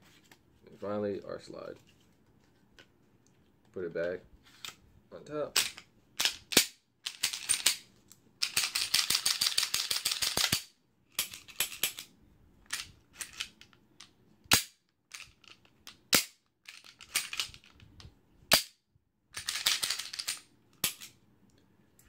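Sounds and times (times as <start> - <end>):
pistol slide clicking and rattling: 8.4 - 12.1, 12.7 - 17.8, 19.4 - 21.2.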